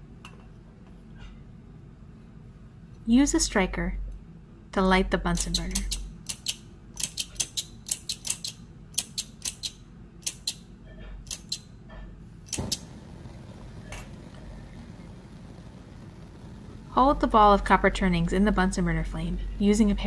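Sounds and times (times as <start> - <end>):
burner flame hissing: 12.3 - 20.0
gas igniting pop: 12.5 - 17.7.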